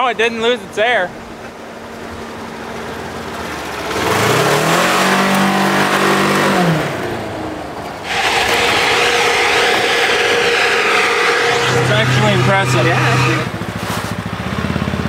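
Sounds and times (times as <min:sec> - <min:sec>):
vehicle engine accelerating: 0:01.9 - 0:15.0.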